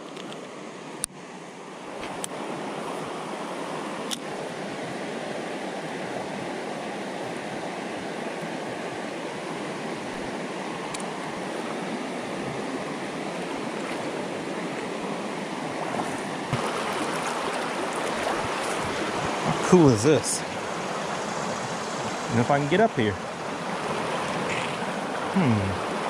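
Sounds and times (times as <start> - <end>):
water rushing over rocks: 1.8 - 26.0.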